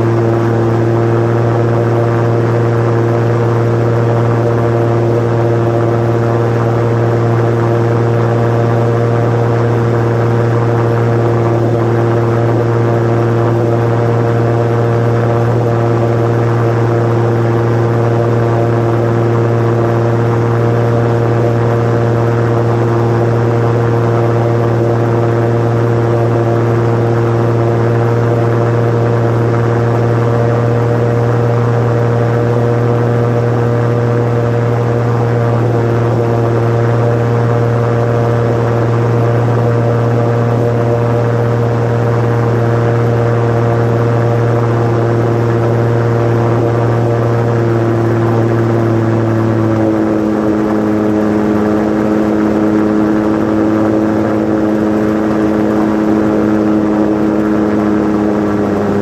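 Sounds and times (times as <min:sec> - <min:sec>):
propeller plane engine droning: 0:00.0 - 0:59.0.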